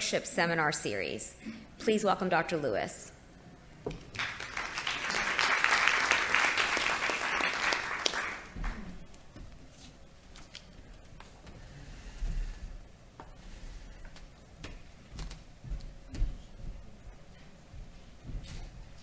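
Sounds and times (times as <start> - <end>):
audience applauding: 4.1 - 9.0.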